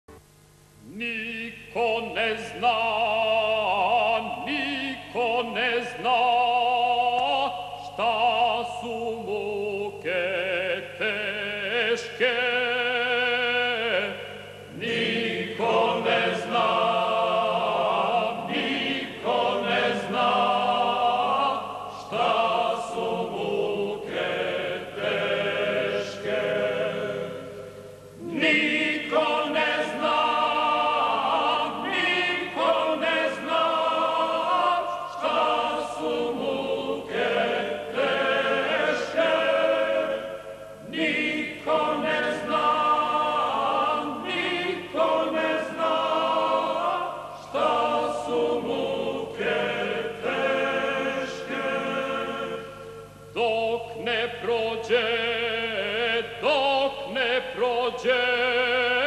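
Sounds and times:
man singing operatically: 0.9 - 14.2, 53.4 - 59.0
choir singing: 1.0 - 59.0.

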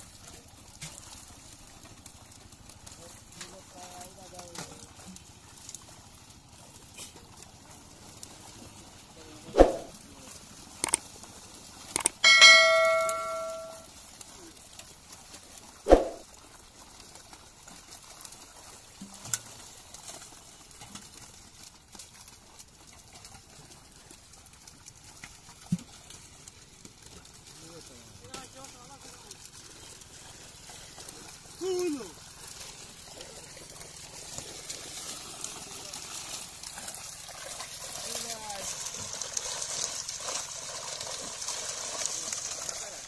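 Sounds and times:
metallic clang ringing: 12.2 - 13.8.

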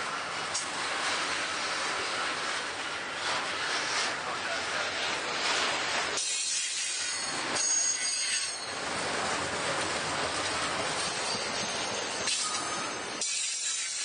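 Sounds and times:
train wheels rumbling and rattling: 0.0 - 14.0
high wheel squeal: 6.2 - 8.8, 11.0 - 14.0.

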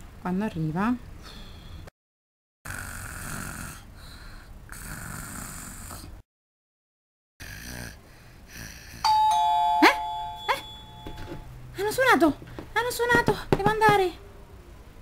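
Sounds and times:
exaggerated breathy snoring: 2.7 - 6.2, 7.4 - 9.1
two-tone doorbell chime: 9.1 - 11.5.

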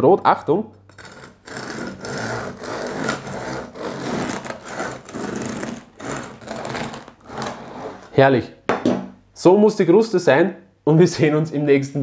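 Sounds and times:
bread knife sawing through crust: 0.9 - 8.1.

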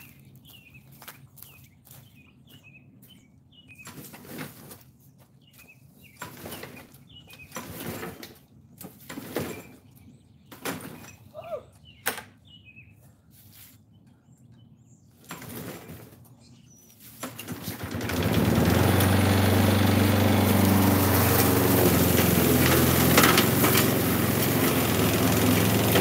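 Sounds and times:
birds chirping: 0.0 - 8.8, 9.4 - 26.0
rustling and scraping: 3.7 - 11.3, 13.3 - 14.0, 15.2 - 19.2, 20.4 - 25.2.

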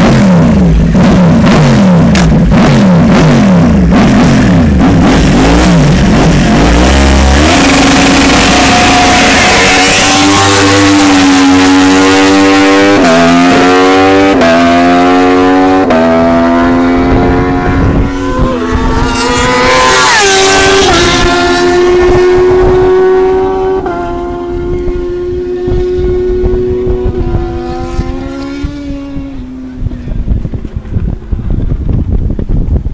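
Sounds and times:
motorcycle engine revving: 0.0 - 32.5.

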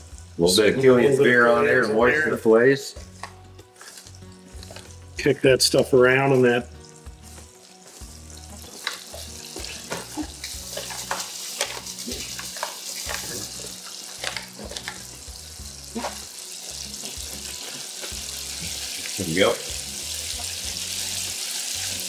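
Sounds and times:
oil popping and crackling: 3.2 - 5.0, 5.7 - 22.0
fish frying in hot oil: 6.7 - 22.0.

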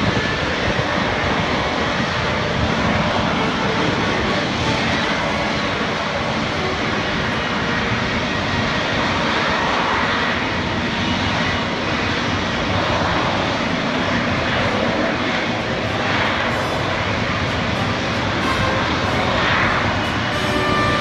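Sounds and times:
jet engine roar: 0.0 - 21.0
faint high whine: 14.0 - 21.0.

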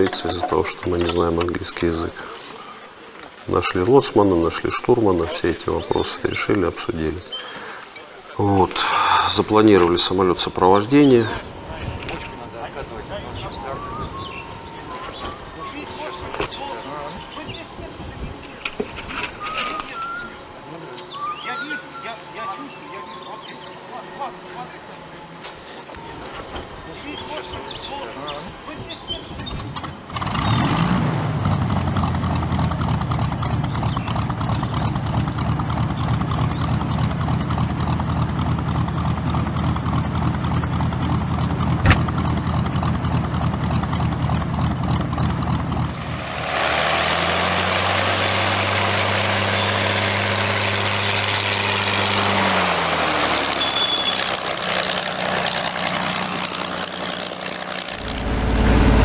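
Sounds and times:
aircraft piston engine running: 31.3 - 59.0
air rush: 58.0 - 59.0.

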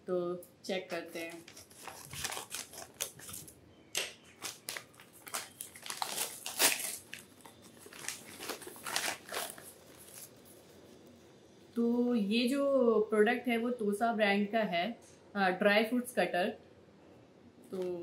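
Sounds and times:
stiff paper crinkling: 0.9 - 3.6, 4.3 - 10.8
scissors snipping paper: 0.9 - 7.2.

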